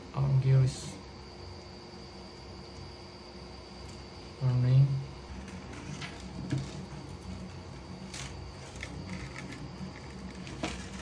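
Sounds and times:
extruder gears whirring: 5.2 - 11.0.

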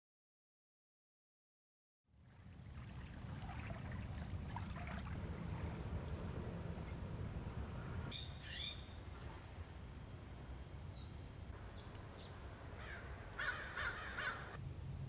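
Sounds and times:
low steady rumble: 2.1 - 15.0
birds calling: 7.8 - 9.2, 10.9 - 14.6.

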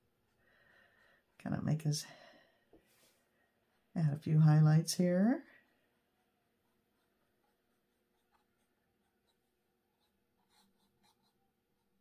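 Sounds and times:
paintbrush scratching on canvas: 5.9 - 12.0.

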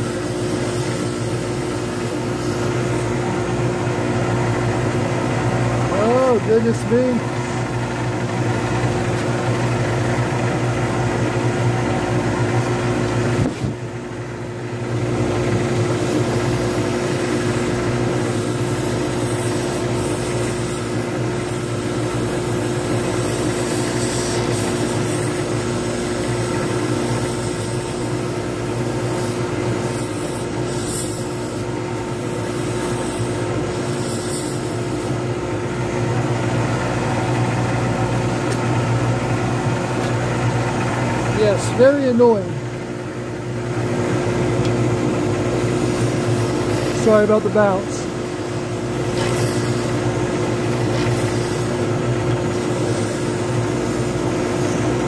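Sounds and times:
lathe motor humming: 0.0 - 55.0
turning tool scraping resin: 29.2 - 31.7, 45.7 - 48.3.

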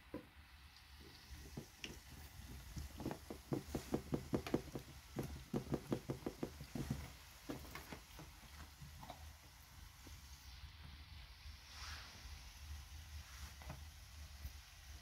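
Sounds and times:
hands patting dough: 1.1 - 8.9.

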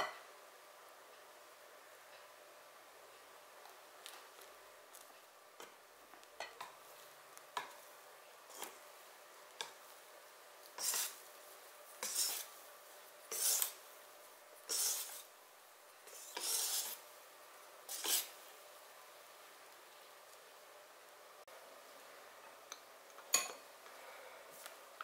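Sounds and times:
whisk scraping through batter: 10.7 - 11.2, 11.9 - 12.6, 13.3 - 13.8, 14.7 - 15.3, 16.1 - 17.0, 17.9 - 18.4.

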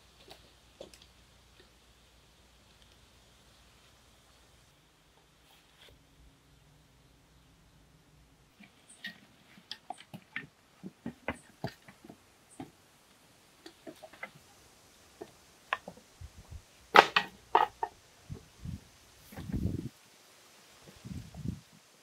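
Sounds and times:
wooden clatter: 8.6 - 12.8, 16.9 - 17.9
wooden tools knocking and scraping: 8.6 - 12.8, 16.9 - 18.4.

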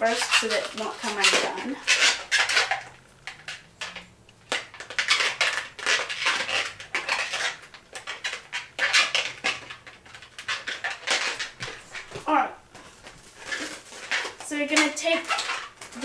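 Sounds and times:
balloon rubber squeaking: 0.0 - 16.0.

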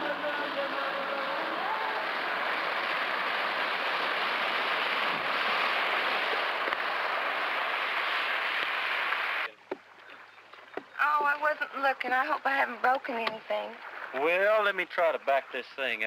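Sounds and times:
motorboat running fast: 0.0 - 8.0
hull spray rushing: 0.0 - 9.5.

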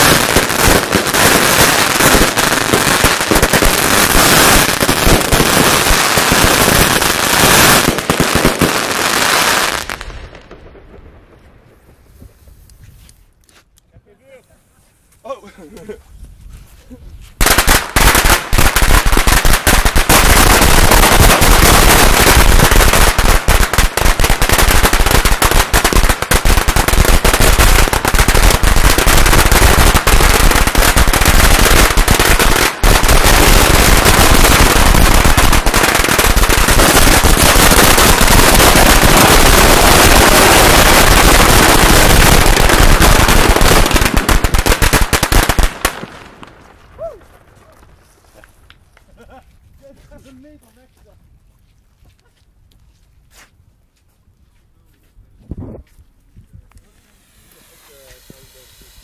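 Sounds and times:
firecrackers crackling: 0.0 - 13.4, 17.4 - 50.8.

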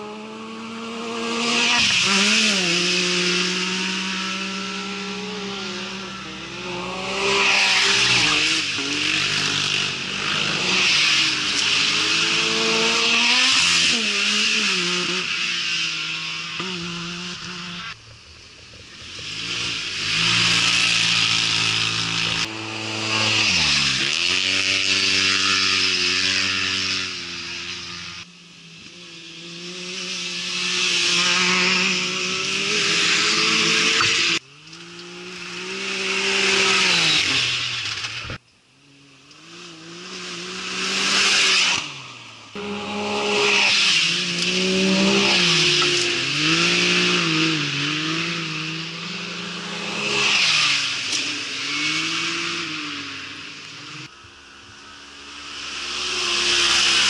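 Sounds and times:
racing buggy engines revving: 0.0 - 57.0.

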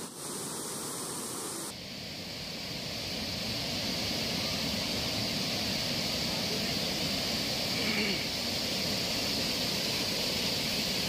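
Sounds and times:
waterfall rushing: 2.4 - 11.0.

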